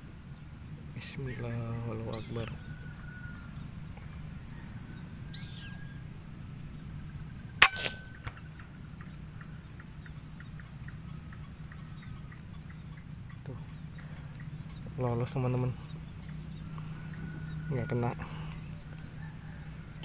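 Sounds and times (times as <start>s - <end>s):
insects chirring: 0.0s - 20.0s
faint bird calls: 7.4s - 20.0s.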